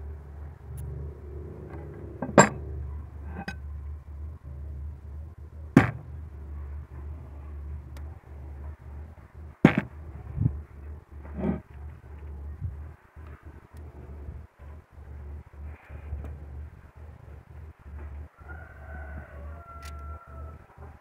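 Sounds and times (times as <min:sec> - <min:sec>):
steady low hum: 0:00.0 - 0:21.0
loud knocks on wooden workbench: 0:05.8 - 0:06.0.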